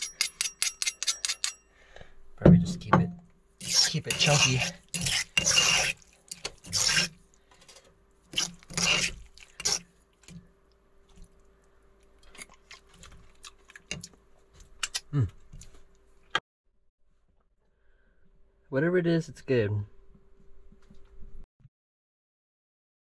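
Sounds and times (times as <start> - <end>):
loud rasping strokes: 3.6 - 6.0, 6.6 - 7.2, 8.3 - 9.9
salsa mashed in stone mortar: 3.6 - 7.2, 8.3 - 10.4.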